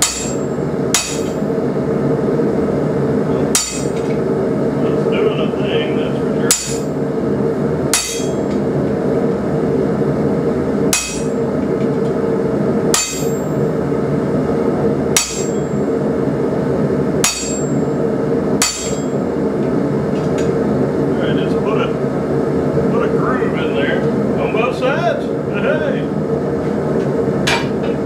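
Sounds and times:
hammer striking metal: 0:00.0 - 0:01.4, 0:03.5 - 0:04.0, 0:06.5 - 0:06.9, 0:07.9 - 0:08.5, 0:10.9 - 0:11.4, 0:12.9 - 0:13.5, 0:15.2 - 0:15.8, 0:17.2 - 0:17.8, 0:18.6 - 0:19.2.

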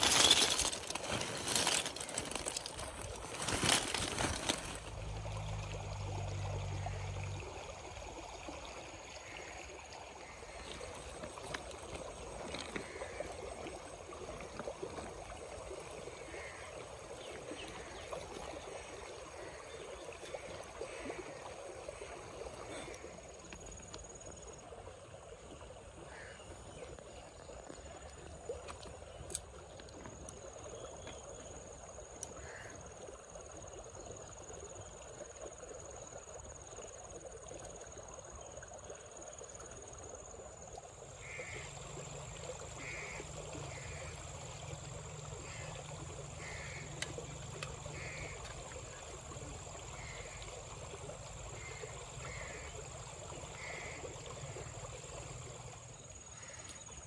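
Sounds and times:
running water: 0:00.0 - 0:57.0
frog-like animal calls: 0:41.2 - 0:44.3, 0:45.4 - 0:48.5.

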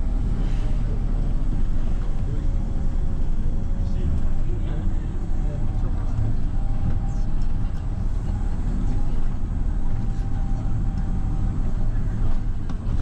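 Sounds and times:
bus engine and road rumble: 0:00.0 - 0:13.0.

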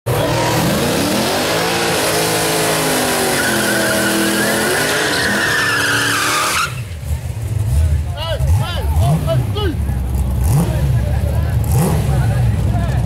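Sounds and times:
car engine revving high: 0:00.1 - 0:06.8, 0:07.6 - 0:12.6
tyres squealing: 0:02.9 - 0:07.0.

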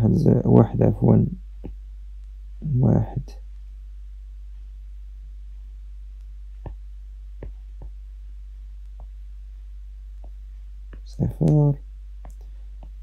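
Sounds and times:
low electrical hum: 0:00.0 - 0:13.0
stylus tapping on tablet: 0:06.6 - 0:08.0, 0:08.8 - 0:09.2, 0:10.2 - 0:11.6, 0:12.2 - 0:13.0.

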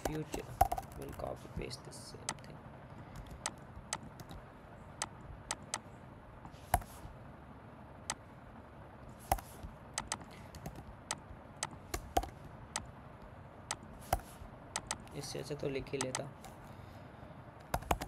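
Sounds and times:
computer keyboard typing: 0:00.0 - 0:01.3, 0:03.1 - 0:04.4, 0:05.0 - 0:05.8, 0:09.2 - 0:12.9, 0:13.7 - 0:15.2, 0:15.9 - 0:16.6, 0:17.6 - 0:18.0.

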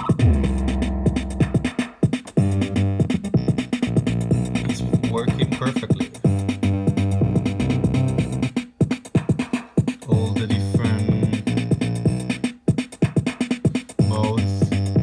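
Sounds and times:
synth parts: 0:00.0 - 0:01.7
drum machine beat: 0:00.0 - 0:15.0.

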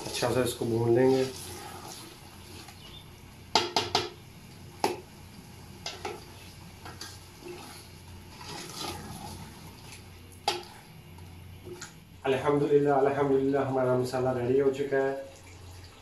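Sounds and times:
spoon knocking against pot: 0:03.5 - 0:04.2.

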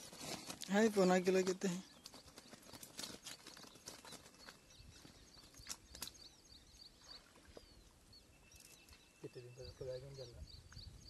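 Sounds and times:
clicks and rustles in reeds: 0:00.0 - 0:06.3
small birds chirping: 0:00.0 - 0:11.0.

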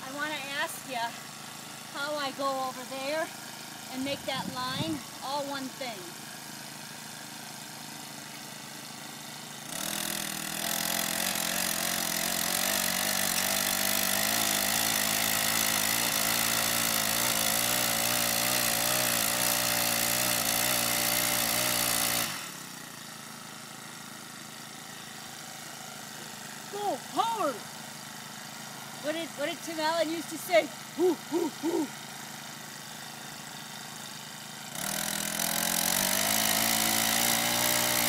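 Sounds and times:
small gas engine revving: 0:00.0 - 0:38.0.

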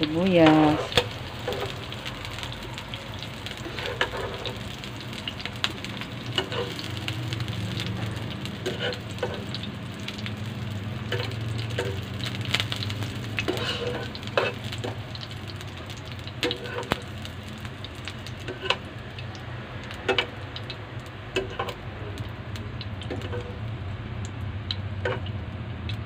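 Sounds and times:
onions sizzling in hot oil: 0:00.0 - 0:26.0
metal tongs clicking on pan: 0:11.1 - 0:12.0.

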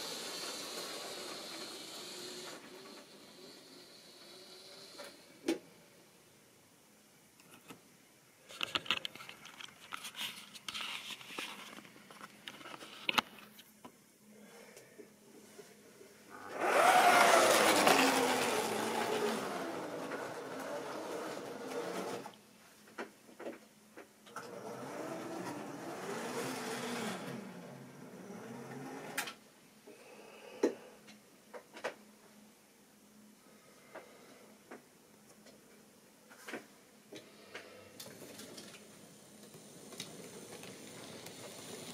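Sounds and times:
model train wheels clicking: 0:00.0 - 0:05.2, 0:16.5 - 0:22.4, 0:25.0 - 0:27.6, 0:38.0 - 0:41.9
small electric motor whine: 0:00.0 - 0:05.4, 0:16.4 - 0:22.3, 0:24.4 - 0:29.3.

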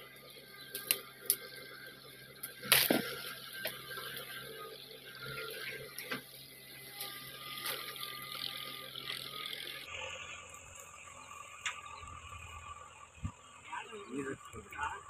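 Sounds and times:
faint engine hum: 0:00.0 - 0:15.0
roots cracking: 0:02.4 - 0:04.3
backhoe bucket digging soil: 0:02.4 - 0:04.5.

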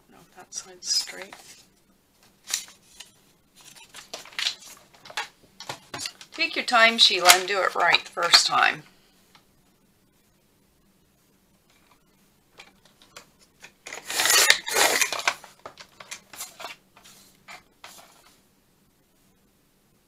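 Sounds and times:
paper rustling: 0:00.9 - 0:08.7, 0:12.6 - 0:18.4
paper trimmer blade scraping: 0:13.9 - 0:15.3.

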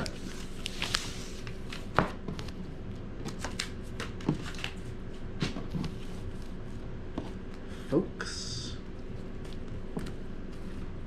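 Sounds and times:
cardboard and paper rustling: 0:00.0 - 0:02.6.

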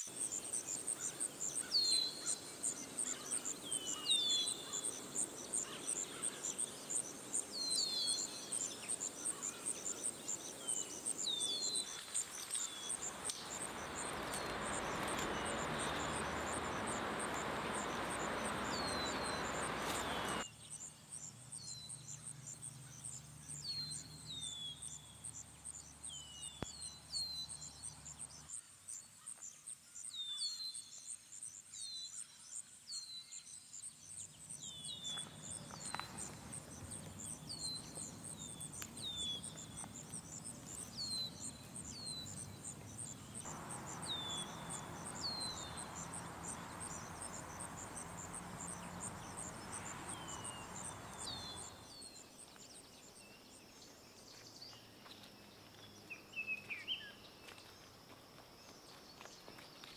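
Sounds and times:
soft rushing hiss: 0:00.0 - 0:21.4, 0:34.0 - 0:59.9
insect trill: 0:00.0 - 0:54.5.

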